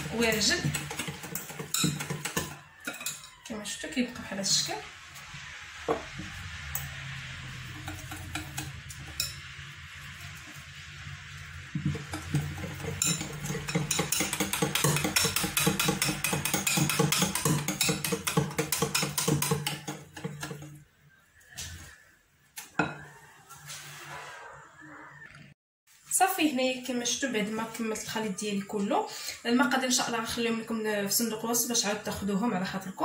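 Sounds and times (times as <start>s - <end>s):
whisk clicking against glass bowl: 13.0s - 20.6s.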